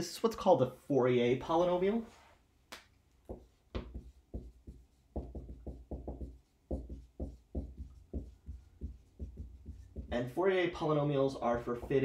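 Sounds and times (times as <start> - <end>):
marker tapping on whiteboard: 3.2 - 10.2, 11.6 - 12.0.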